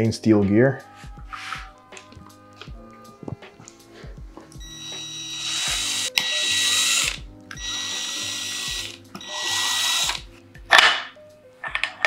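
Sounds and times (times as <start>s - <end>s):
cordless drill whirring: 4.6s - 10.2s.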